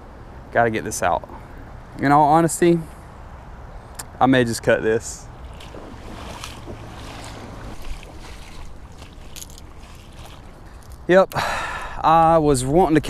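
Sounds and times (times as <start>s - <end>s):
wind: 0.0s - 13.0s
water noise: 5.0s - 13.0s.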